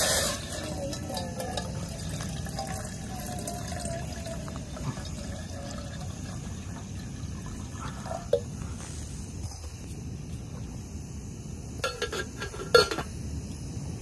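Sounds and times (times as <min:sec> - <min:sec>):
water pouring into metal pot: 0:00.0 - 0:08.4.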